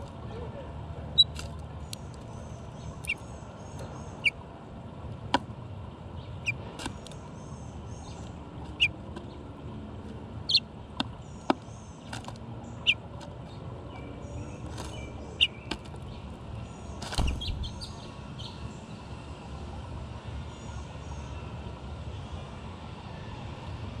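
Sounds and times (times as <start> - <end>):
faint distant birdsong: 0.0 - 24.0
short bird chips: 1.2 - 2.3.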